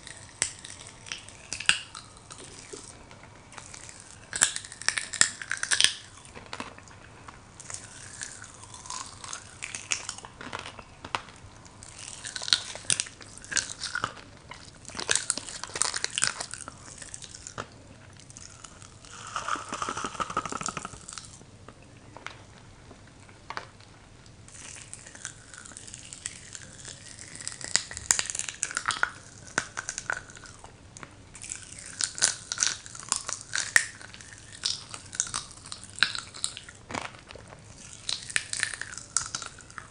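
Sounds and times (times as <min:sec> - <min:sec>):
wet chewing: 0:00.0 - 0:07.0, 0:07.6 - 0:22.4
popping candy crackling: 0:00.0 - 0:39.9
candy sachet rustling: 0:07.6 - 0:22.6.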